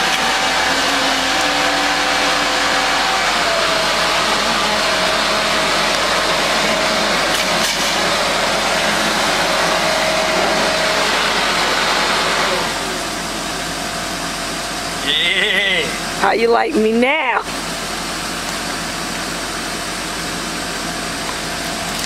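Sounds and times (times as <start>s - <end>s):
leaf blower whining: 0.0s - 16.2s.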